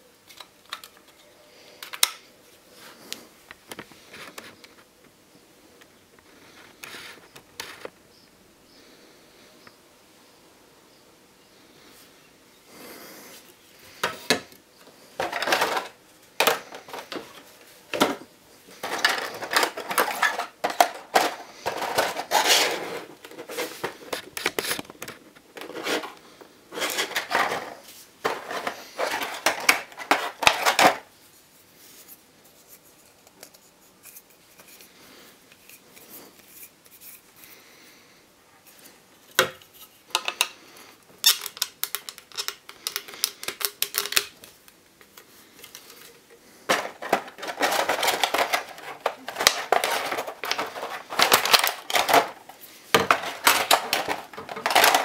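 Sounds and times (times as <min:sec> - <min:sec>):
plastic packaging crinkling: 0:18.7 - 0:31.1, 0:45.4 - 0:55.0.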